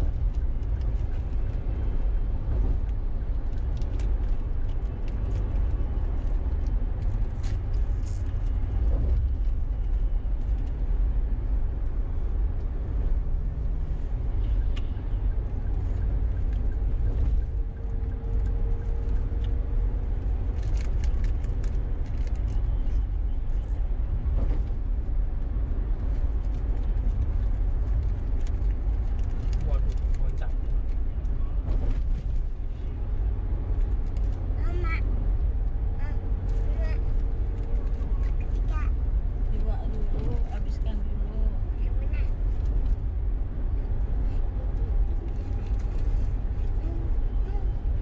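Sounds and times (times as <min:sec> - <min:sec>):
car road and engine rumble: 0:00.0 - 0:48.0.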